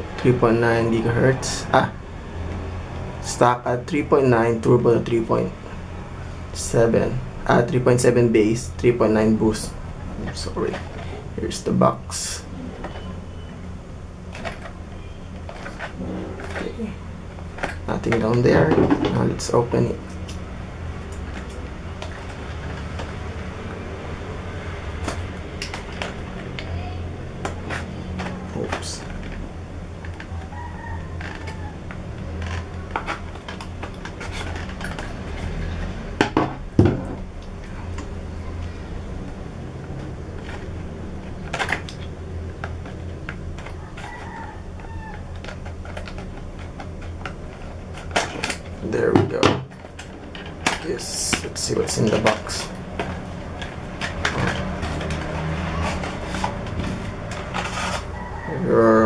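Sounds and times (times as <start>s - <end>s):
low background hum: 0.0s - 59.0s
scissors cutting cardboard: 49.8s - 58.5s.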